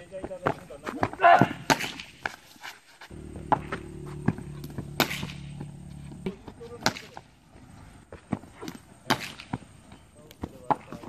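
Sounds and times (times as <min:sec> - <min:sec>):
bat striking ball: 0:03.1 - 0:07.2
low steady hum: 0:03.1 - 0:08.0.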